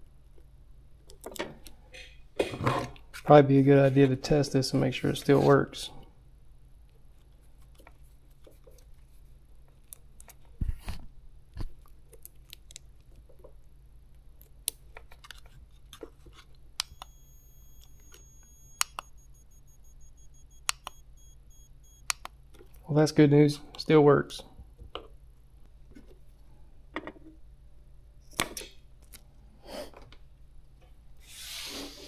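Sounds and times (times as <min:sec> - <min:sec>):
high-pitched inverter whine: 0:16.8 - 0:22.1.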